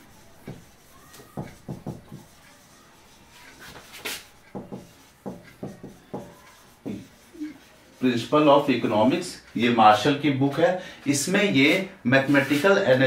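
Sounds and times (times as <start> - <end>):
marker writing on a whiteboard: 0.0 - 9.8.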